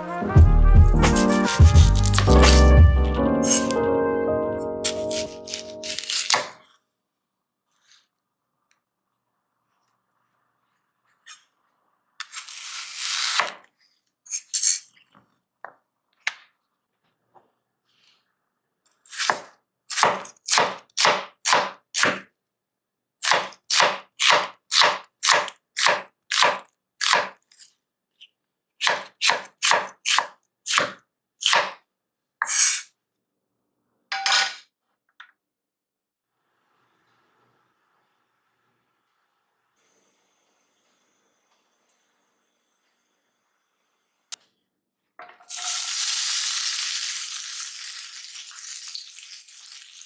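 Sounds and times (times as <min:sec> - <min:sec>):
knife slicing onion on board: 0:01.0 - 0:02.7, 0:03.4 - 0:03.8, 0:04.9 - 0:06.6, 0:12.2 - 0:13.7, 0:19.1 - 0:22.3, 0:23.2 - 0:27.4, 0:28.8 - 0:31.8, 0:32.4 - 0:32.9.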